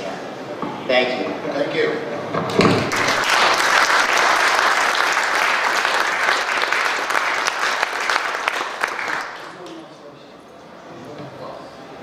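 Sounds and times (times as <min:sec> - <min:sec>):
audience applauding: 0:02.7 - 0:09.9.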